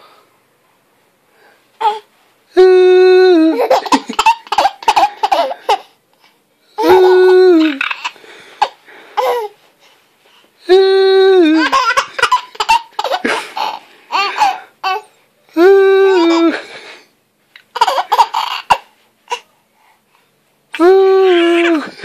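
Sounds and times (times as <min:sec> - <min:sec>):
baby laughing: 0:03.4 - 0:06.0, 0:06.8 - 0:09.6, 0:11.2 - 0:15.1, 0:15.7 - 0:16.6, 0:17.6 - 0:19.5, 0:20.8 - 0:22.0.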